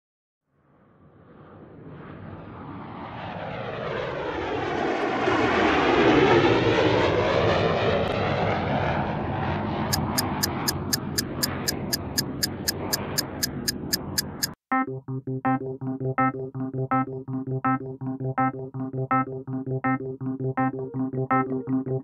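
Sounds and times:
aircraft flyby: 0:01.0 - 0:14.5
film projector ticking: 0:09.9 - 0:14.6.

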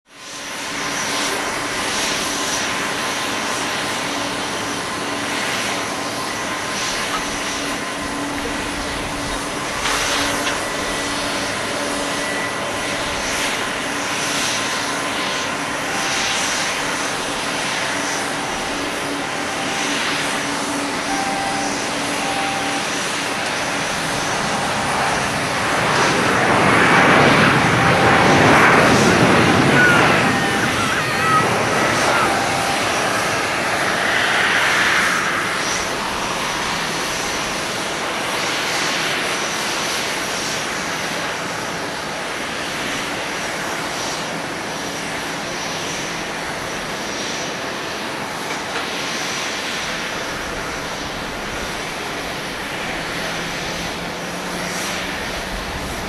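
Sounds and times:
jet engines rushing whine: 0:00.0 - 0:56.0.

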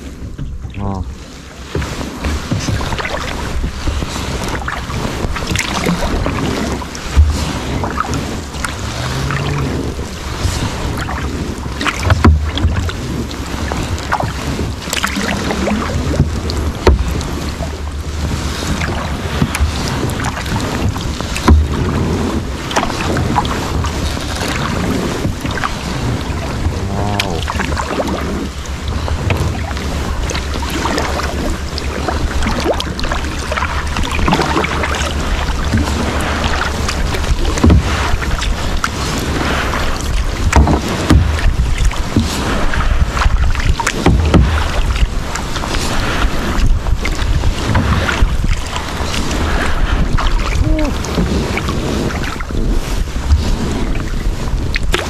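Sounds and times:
paddles dipping and splashing: 0:00.0 - 0:55.0
water washing along hull: 0:00.0 - 0:55.0
wind buffeting microphone: 0:00.0 - 0:55.0
sharp splashes or knocks: 0:00.4 - 0:52.5, 0:53.2 - 0:55.0
heavy thump: 0:21.4 - 0:22.0, 0:44.0 - 0:44.7.

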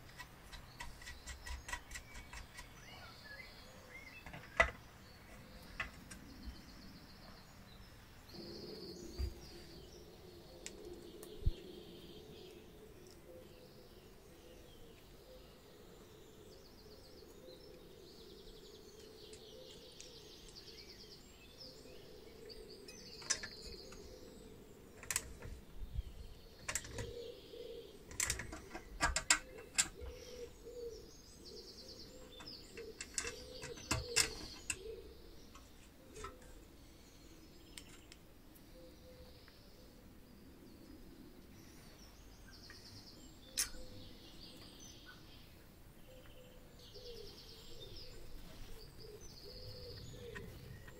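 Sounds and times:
metal parts clicking and tapping: 0:00.0 - 0:02.8, 0:22.9 - 0:24.0, 0:25.0 - 0:25.6, 0:26.6 - 0:27.2, 0:28.1 - 0:30.2, 0:32.3 - 0:34.9
faint bird chirping: 0:00.0 - 0:50.9.

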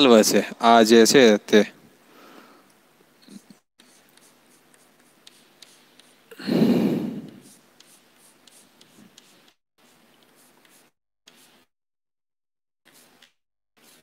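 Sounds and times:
chalk tapping on blackboard: 0:03.8 - 0:06.3, 0:07.3 - 0:11.7, 0:12.9 - 0:14.0.

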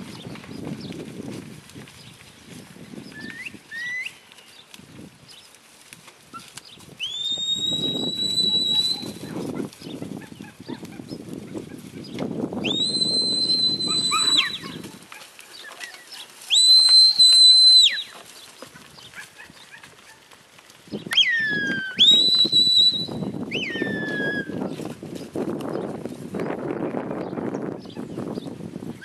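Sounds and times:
high whistle commands: 0:07.0 - 0:09.2, 0:12.6 - 0:14.6, 0:16.5 - 0:18.1, 0:21.2 - 0:24.5.

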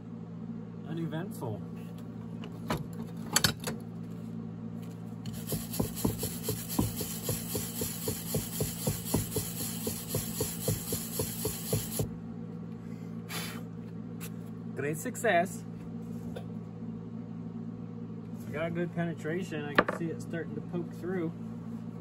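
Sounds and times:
wire brush scrubbing metal: 0:05.3 - 0:12.1.

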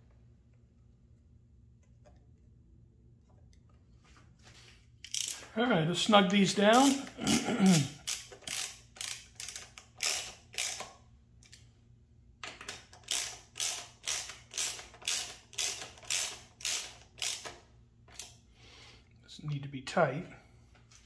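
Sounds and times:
ratchet driver clicking: 0:05.0 - 0:05.5, 0:08.0 - 0:11.7, 0:12.4 - 0:18.4.

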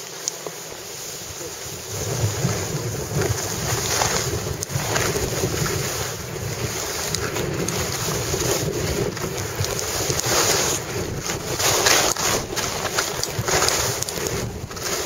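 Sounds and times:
ski edges carving snow: 0:00.0 - 0:15.0
wind rushing over microphone: 0:01.0 - 0:15.0.

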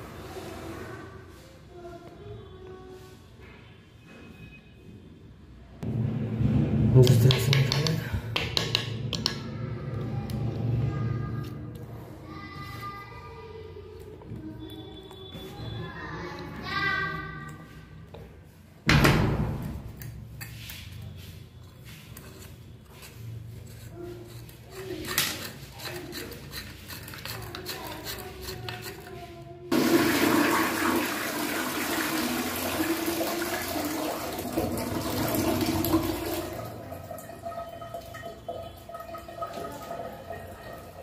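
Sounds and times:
plastic parts knocking: 0:07.1 - 0:09.4
toilet flushing: 0:29.7 - 0:41.0.

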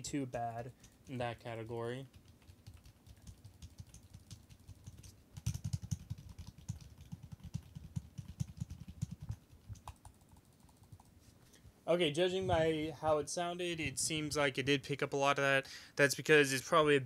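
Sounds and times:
typing on computer keyboard: 0:02.0 - 0:11.1.

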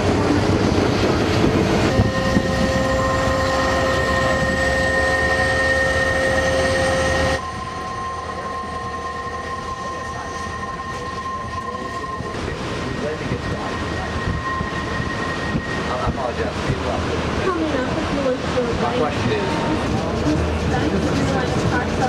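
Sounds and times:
train rumbling: 0:00.0 - 0:22.0
train wheels squealing: 0:02.1 - 0:16.5.

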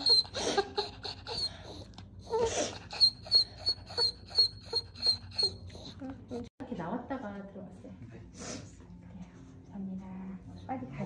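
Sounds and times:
dog panting quickly: 0:00.0 - 0:06.5
dog whining: 0:00.0 - 0:06.5.

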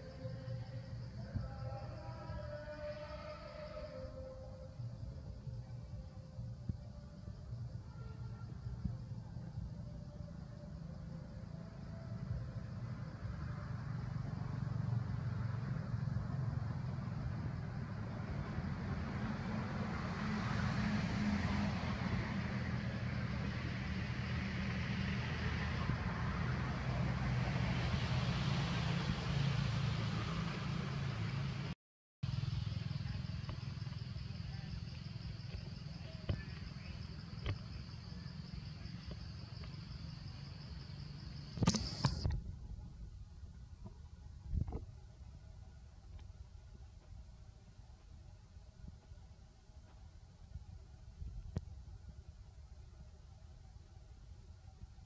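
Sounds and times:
low outdoor rumble: 0:00.0 - 0:55.0
high-pitched insect drone: 0:32.3 - 0:42.3.

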